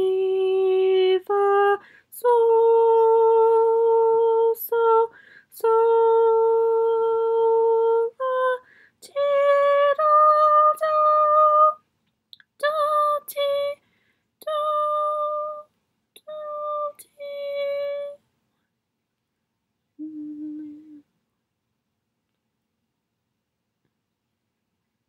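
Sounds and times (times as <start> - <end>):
woman singing unaccompanied: 0.0 - 11.8, 12.4 - 13.8, 14.4 - 18.2, 20.0 - 21.1.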